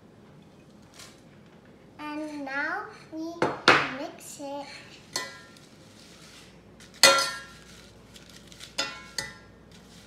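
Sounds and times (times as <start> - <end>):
metal spoon clinking in saucepan: 7.0 - 7.6, 8.8 - 9.5.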